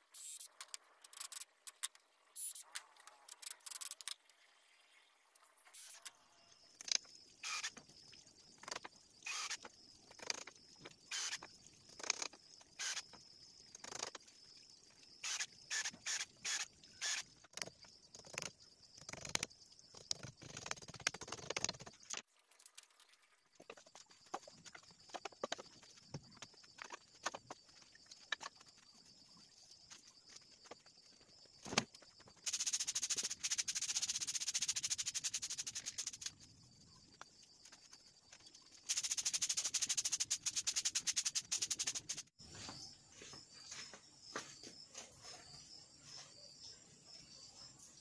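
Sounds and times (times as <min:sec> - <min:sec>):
cordless drill drilling bamboo: 0:06.8 - 0:07.8, 0:09.2 - 0:10.4, 0:11.1 - 0:13.2, 0:15.2 - 0:18.4
footsteps on dirt floor: 0:42.4 - 0:46.5.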